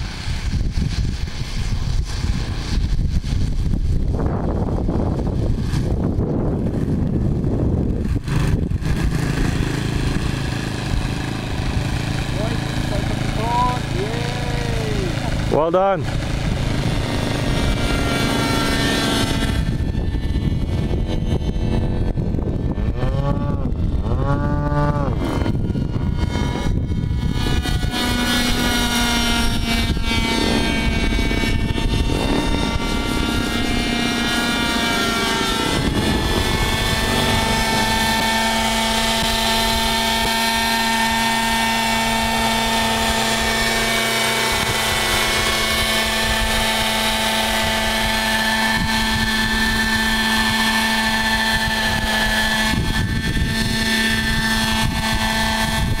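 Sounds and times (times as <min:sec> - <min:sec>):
model helicopter engine and rotor: 0:00.0 - 0:56.0.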